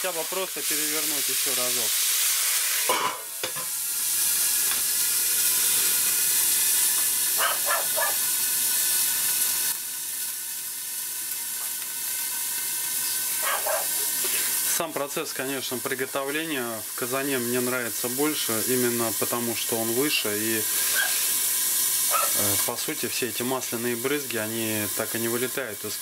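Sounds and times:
steaks sizzling in a pan: 0.0 - 26.0
metal lid clanking onto pan: 2.9 - 3.7.

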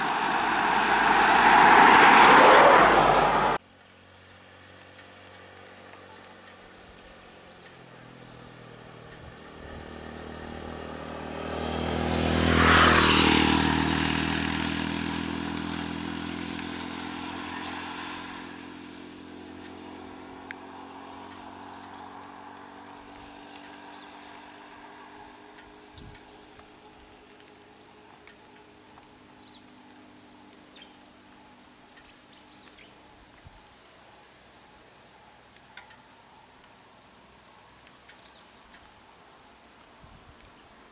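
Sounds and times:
road vehicle passing: 0.0 - 3.6, 8.0 - 26.9
insects droning: 0.0 - 40.9.

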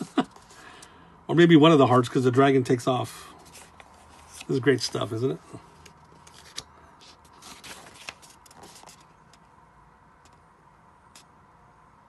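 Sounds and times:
paper page rustling: 3.4 - 9.4.

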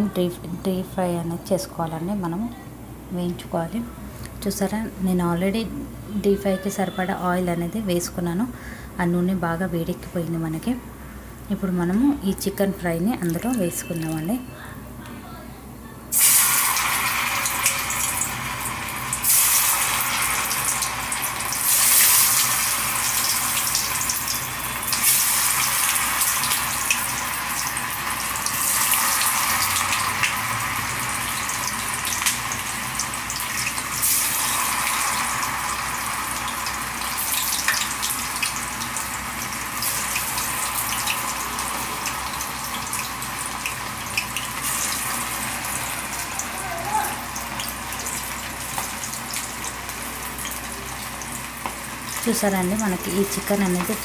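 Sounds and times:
oil sizzling while deep-frying: 16.1 - 54.0.

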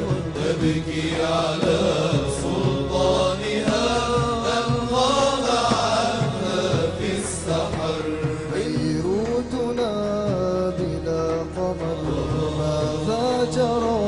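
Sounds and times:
voices chanting devotional song: 0.0 - 14.0.

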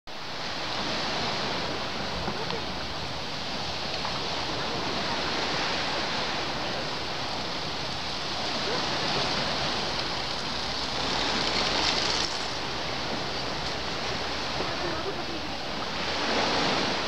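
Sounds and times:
waves breaking on beach: 0.1 - 17.0.

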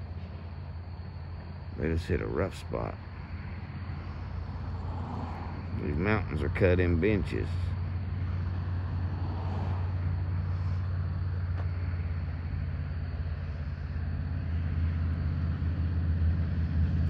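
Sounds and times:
bulldozer engine droning: 0.0 - 17.0.

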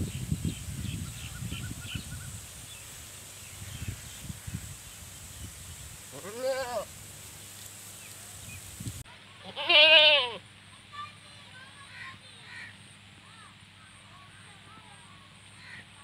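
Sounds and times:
goat bleating: 6.1 - 6.9, 9.4 - 10.4.

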